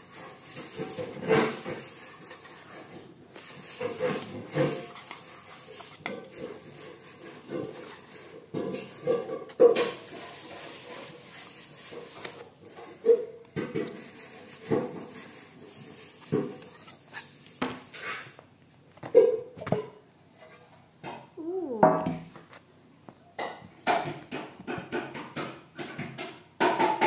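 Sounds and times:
knife scraping metal tin: 0.1s - 13.2s.

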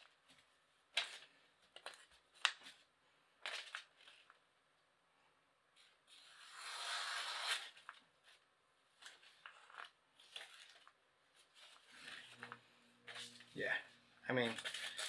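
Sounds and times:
light paper crackles: 7.6s - 13.6s, 14.4s - 15.0s.

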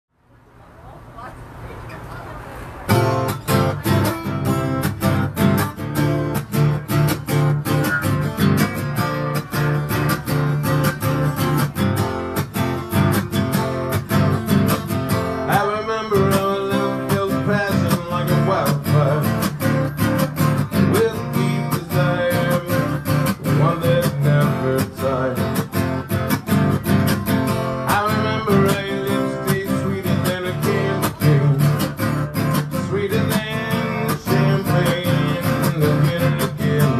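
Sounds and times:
acoustic guitar strumming: 2.9s - 36.9s
man singing: 15.3s - 36.9s.

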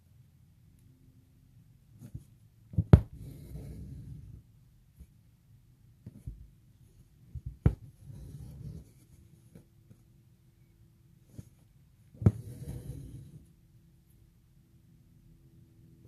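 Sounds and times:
thread rasping through fabric: 7.3s - 10.0s, 11.3s - 13.5s.

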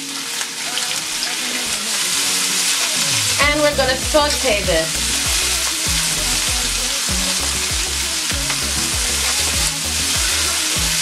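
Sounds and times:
vegetables sizzling in a pan: 0.0s - 11.0s
background music with bass beat: 3.0s - 11.0s.

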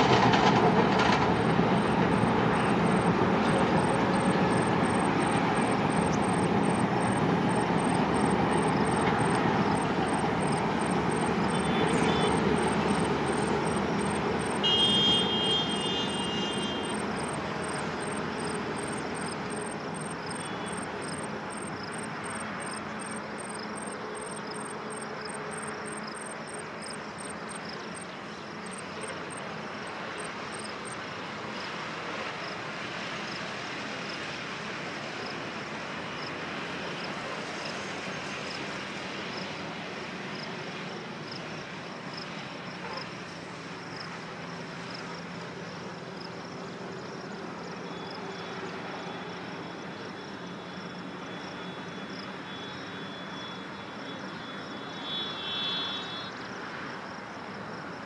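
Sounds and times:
distant train rumble: 0.0s - 58.0s
short high train horn: 11.5s - 12.5s, 14.6s - 17.0s, 52.6s - 56.4s.

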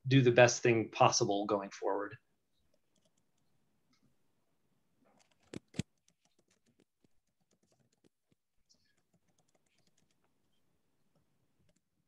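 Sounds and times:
keyboard typing clicks: 5.2s - 10.3s.

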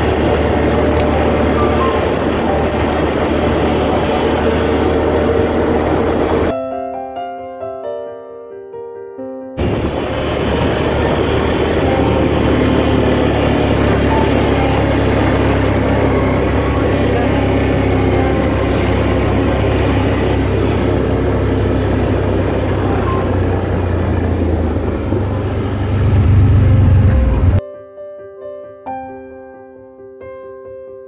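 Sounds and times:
atv engine running: 0.0s - 6.5s, 9.6s - 27.6s.

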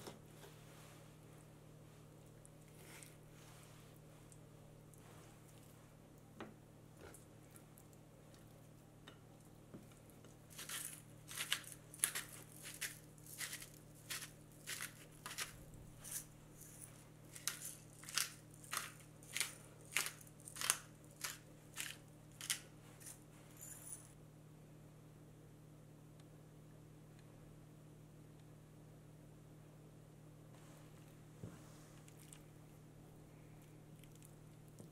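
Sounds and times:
pepper mill grinding: 10.5s - 24.0s.

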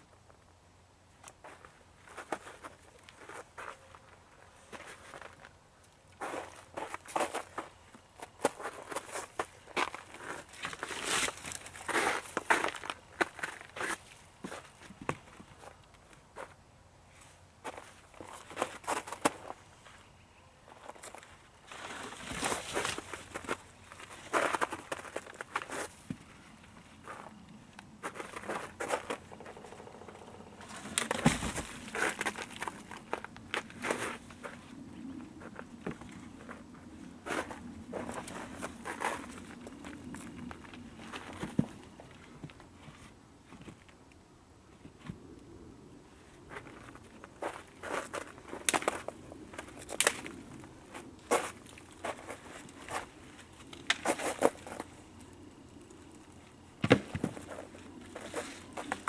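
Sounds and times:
footsteps through brittle brush: 1.3s - 20.1s, 20.7s - 26.4s, 30.6s - 42.2s
dry branches cracking and clattering: 9.8s - 13.6s, 30.6s - 34.5s, 48.5s - 50.6s
twigs crackling and snapping: 48.5s - 50.6s, 53.4s - 56.3s.

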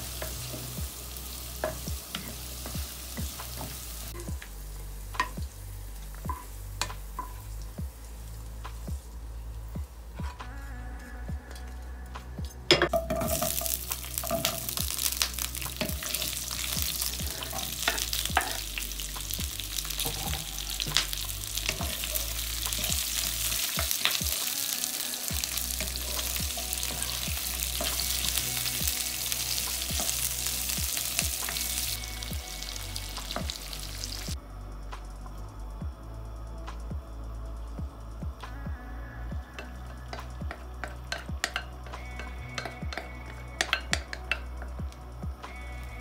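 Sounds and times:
vegetables sizzling in oil: 0.0s - 10.5s, 12.9s - 34.4s, 39.5s - 44.7s
wooden spatula clicking and scraping: 39.6s - 44.8s.

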